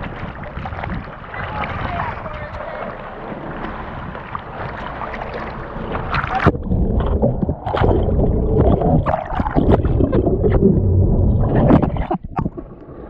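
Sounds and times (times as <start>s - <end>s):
underwater churning bubbles: 0.0s - 13.0s
water sloshing and splashing: 0.0s - 13.0s
small underwater knocks and clicks: 11.7s - 12.7s.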